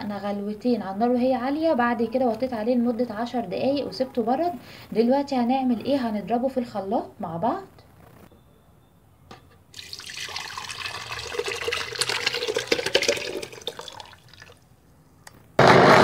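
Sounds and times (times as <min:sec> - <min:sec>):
syrup splashing into blender jar: 0:09.8 - 0:14.6
loud steady sound: 0:15.6 - 0:16.0.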